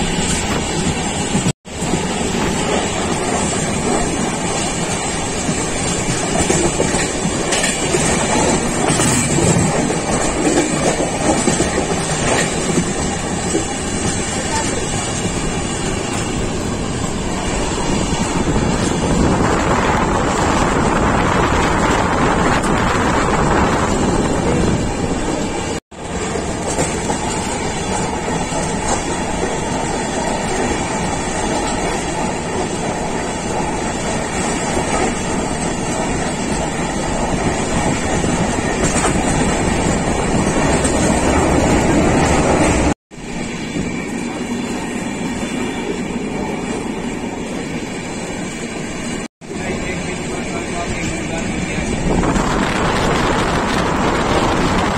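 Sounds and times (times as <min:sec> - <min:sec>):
train wheels rumbling on rails: 0:00.0 - 0:54.9.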